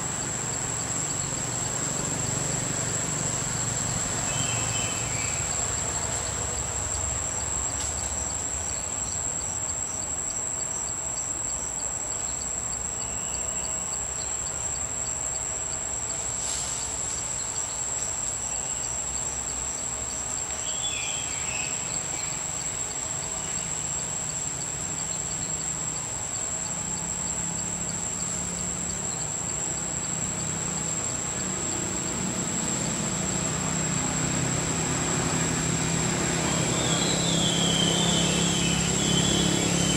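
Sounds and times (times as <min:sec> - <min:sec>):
faint pulsing insect trill: 0:00.0 - 0:39.9
high-pitched insect shrill: 0:04.2 - 0:05.8, 0:13.0 - 0:14.5, 0:36.5 - 0:39.9.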